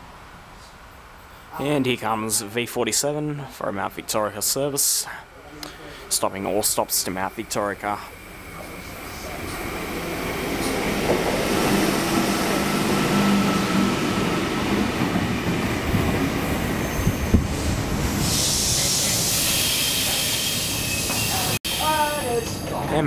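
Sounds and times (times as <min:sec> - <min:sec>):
train brakes hissing: 0:05.0 - 0:14.8, 0:16.2 - 0:22.7
electric train rumble and hum: 0:06.2 - 0:23.0.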